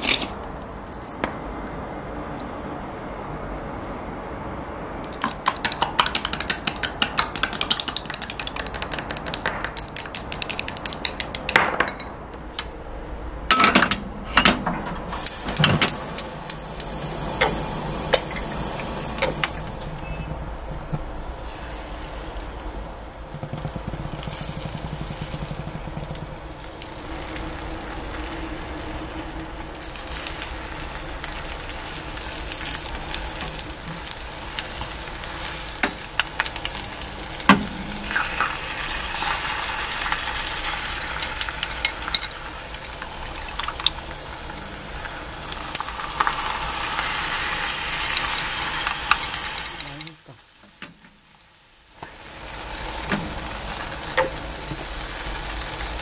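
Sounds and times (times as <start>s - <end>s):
egg sizzling in pan: 5.1s - 11.5s, 15.1s - 56.0s
chopsticks beating eggs in bowl: 5.2s - 11.6s
oil hissing in frying pan: 15.1s - 19.9s, 21.2s - 56.0s.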